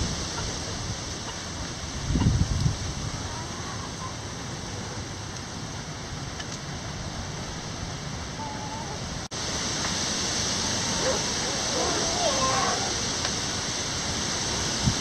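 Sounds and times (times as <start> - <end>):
heavy rain hissing: 0.0 - 15.0
faint hen calls: 8.4 - 9.1, 10.8 - 13.0.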